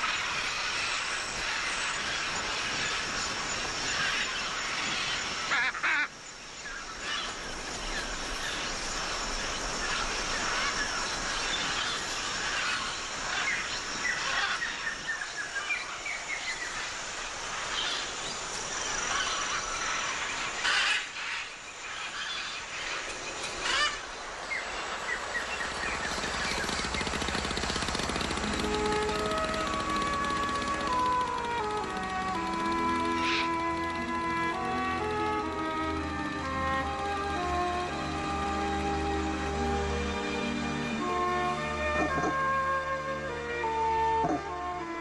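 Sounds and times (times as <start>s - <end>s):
macaws squawking: 3.9s - 6.2s, 9.8s - 15.2s, 18.8s - 39.0s.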